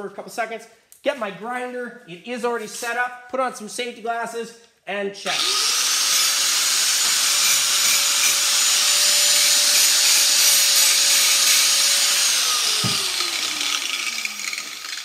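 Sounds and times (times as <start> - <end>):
angle grinder on metal: 5.3 - 15.0
dull knock: 12.8 - 13.1.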